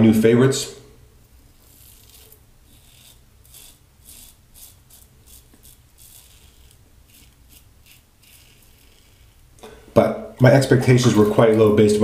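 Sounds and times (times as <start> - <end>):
razor scraping stubble: 1.5 - 9.6.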